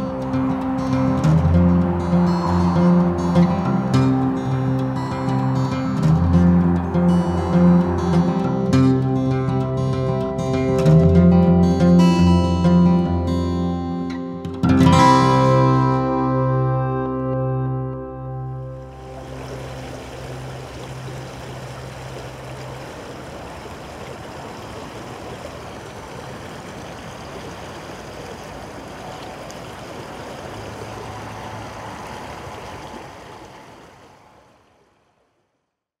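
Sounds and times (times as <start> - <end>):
flowing water rushing: 0.0 - 11.9, 18.5 - 35.4.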